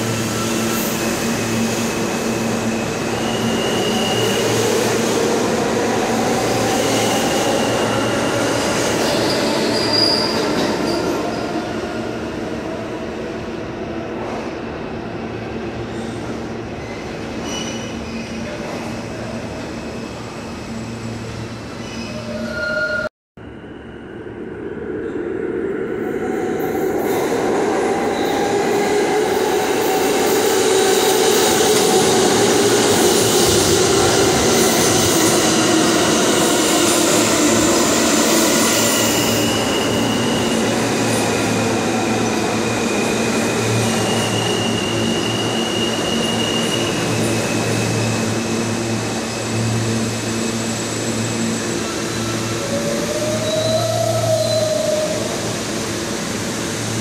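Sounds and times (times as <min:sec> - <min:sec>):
subway train wheels rumbling: 0:00.0 - 0:57.0
high brake squealing: 0:02.8 - 0:04.6, 0:09.2 - 0:11.4, 0:16.8 - 0:18.5, 0:42.6 - 0:48.4.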